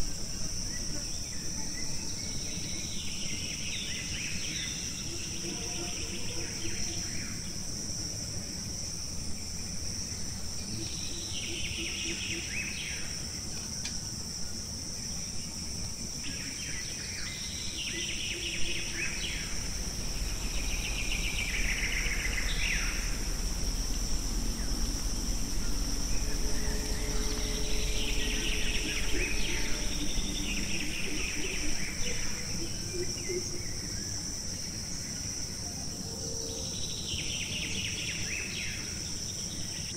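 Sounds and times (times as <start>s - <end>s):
high-pitched insect drone: 0.0s - 39.9s
low rumble: 17.6s - 34.4s.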